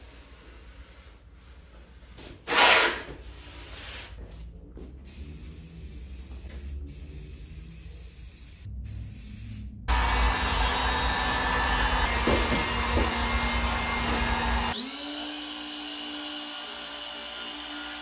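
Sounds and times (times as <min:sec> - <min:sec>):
heat gun fan blowing: 0:09.9 - 0:15.0.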